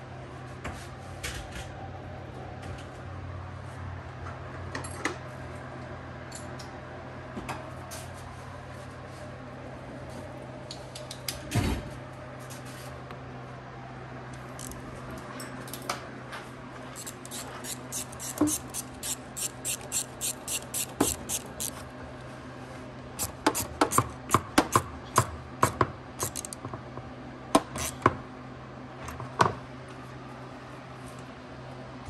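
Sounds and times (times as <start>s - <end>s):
steady low hum: 5.2s - 32.0s
screwdriver ratchet clicks: 17.0s - 21.8s, 26.2s - 26.6s
tool and parts knocking: 20.8s - 21.5s.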